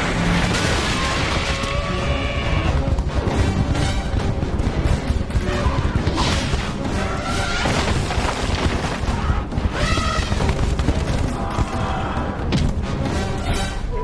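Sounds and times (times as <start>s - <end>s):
orchestral film score: 0.0s - 14.0s.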